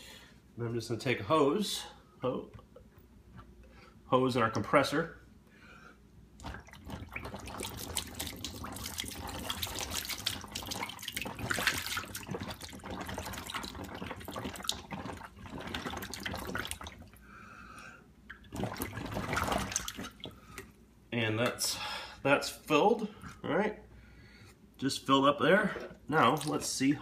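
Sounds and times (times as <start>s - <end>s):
air bubbling through water: 6.4s - 17.3s, 18.3s - 20.7s.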